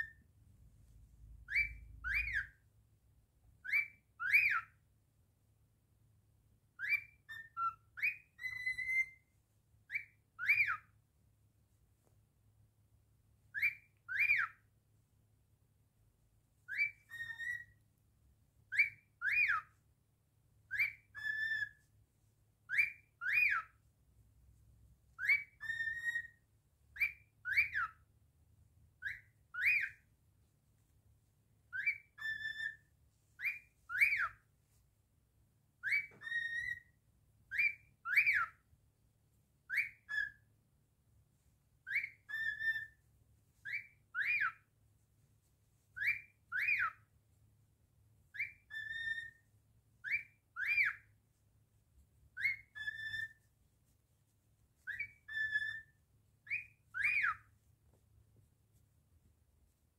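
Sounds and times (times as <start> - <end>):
cockatiel whistling: 0.0 - 0.3, 1.2 - 2.6, 3.6 - 4.8, 6.8 - 9.3, 9.9 - 11.0, 13.5 - 14.7, 16.7 - 17.9, 18.7 - 19.8, 20.6 - 21.9, 22.6 - 23.8, 25.2 - 28.1, 29.0 - 30.1, 31.7 - 34.5, 35.8 - 38.7, 39.6 - 40.5, 41.8 - 44.7, 45.9 - 47.1, 48.3 - 51.2, 52.3 - 53.5, 54.8 - 57.6.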